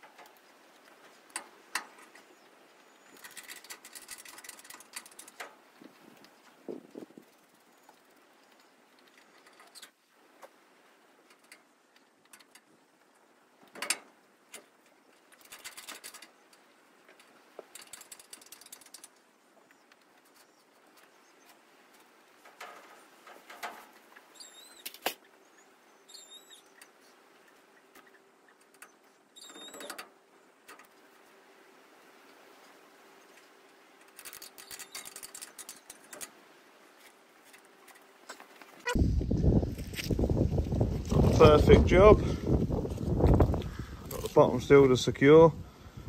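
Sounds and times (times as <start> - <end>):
hands handling netting and clips: 3.0 - 6.6, 11.2 - 25.4, 33.4 - 39.0.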